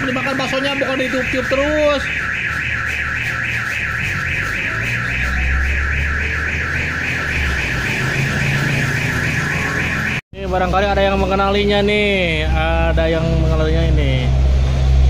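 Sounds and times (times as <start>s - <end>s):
warbling electronic alarm: 0.0s - 10.2s
road traffic engine rumble: 0.0s - 15.0s.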